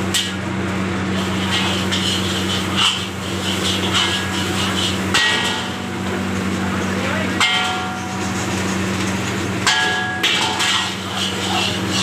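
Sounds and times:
steady low hum: 0.0 - 12.0
metal ladle scraping wok: 1.2 - 6.2, 10.2 - 12.0
wok ringing clang: 3.9 - 6.1, 7.4 - 8.9, 9.6 - 12.0.

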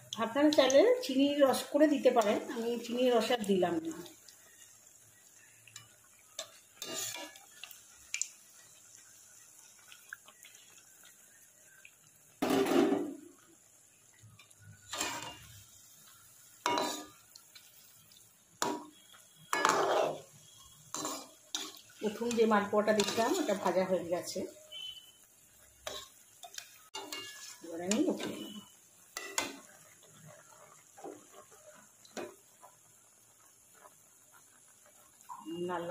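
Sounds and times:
frying oil hissing: 0.0 - 35.9
metal spoon clattering against pan: 16.6 - 17.1, 20.9 - 23.5, 25.8 - 28.4.

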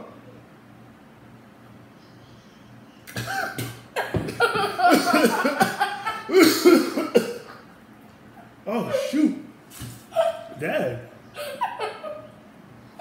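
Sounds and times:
man coughing and gasping: 3.1 - 7.6, 8.7 - 9.4
child laughing: 3.3 - 7.6, 10.1 - 10.6, 11.4 - 12.4.

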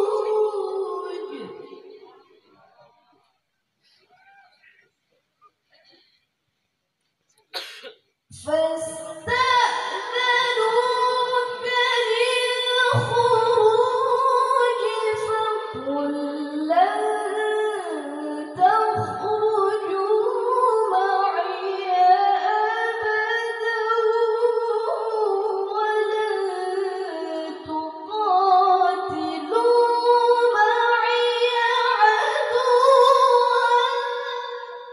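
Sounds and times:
woman reciting melodically: 0.0 - 2.4, 8.3 - 34.9.

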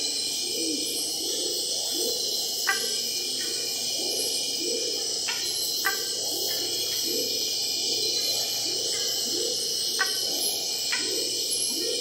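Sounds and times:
high insect chorus: 0.0 - 12.0.

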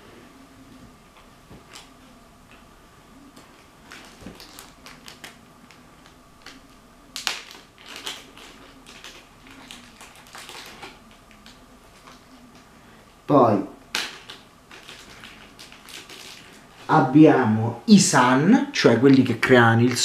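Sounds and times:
plastic toys crackling and clicking: 1.6 - 2.7, 3.3 - 12.7, 13.8 - 16.9.

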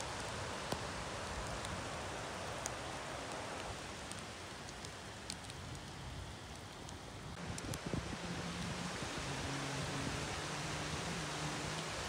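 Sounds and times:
raindrop ticks: 0.0 - 1.8, 2.5 - 7.9
steady rain: 0.0 - 12.0.

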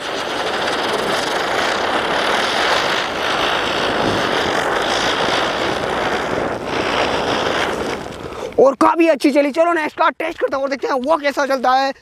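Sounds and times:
spinner firework hissing whoosh: 0.0 - 8.7.

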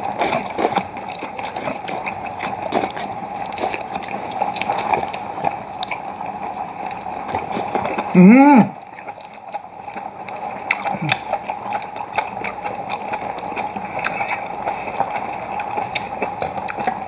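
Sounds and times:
steady background hum: 0.0 - 17.0
wet slurping and chewing: 0.0 - 17.0
mouth smacks and clicks: 7.3 - 17.0.

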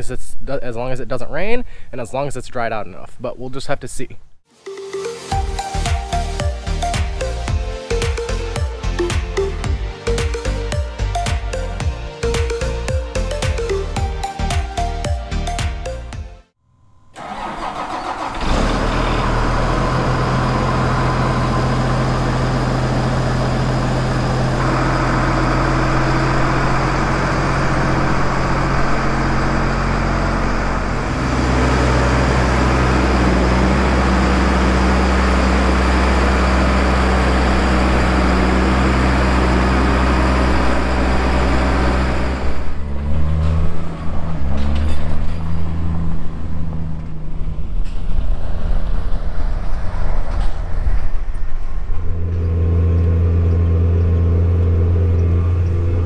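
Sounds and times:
tractor diesel engine running: 5.3 - 15.6, 16.8 - 56.0
road vehicle driving: 16.7 - 56.0.

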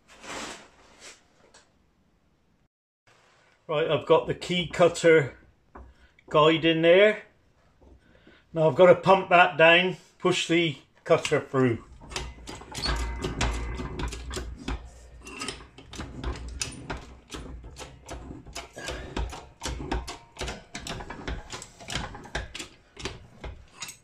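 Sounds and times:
hydraulic press clicking and knocking: 11.2 - 24.0.

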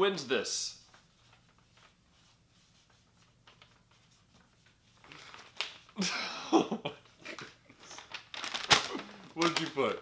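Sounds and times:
paper rustling: 0.8 - 6.0, 7.0 - 10.0.

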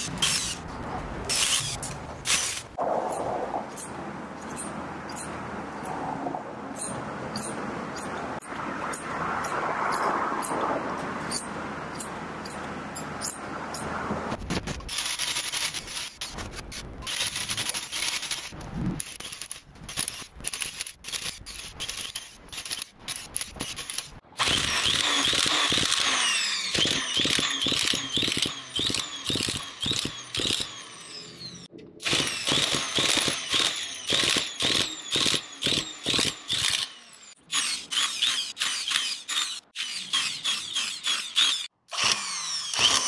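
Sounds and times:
tufting gun clattering and squealing: 14.7 - 36.9.

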